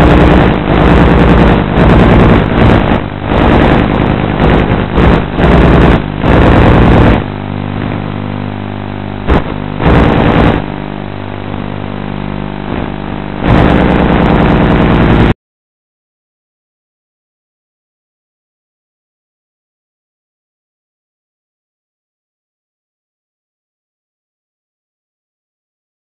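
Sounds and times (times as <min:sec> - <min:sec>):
drone propellers whirring: 0:00.0 - 0:08.2, 0:09.2 - 0:15.3.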